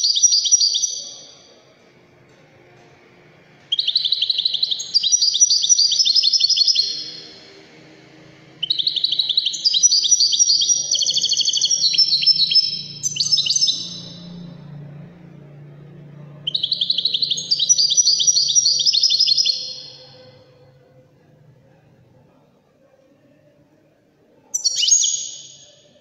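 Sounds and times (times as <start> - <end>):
finch singing high twittering notes: 3.7 - 7.4, 8.6 - 14.5, 16.4 - 20.3.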